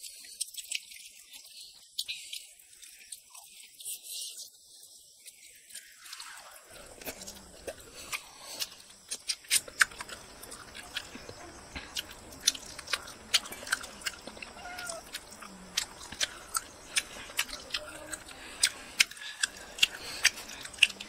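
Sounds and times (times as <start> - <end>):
wet chewing and lip-smacking: 0.0 - 4.1, 5.2 - 21.0
mouth clicks: 6.9 - 21.0.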